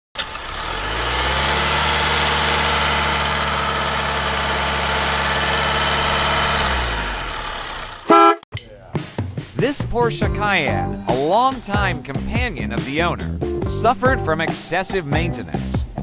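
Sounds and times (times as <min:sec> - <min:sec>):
car engine idling: 0:00.2 - 0:08.2.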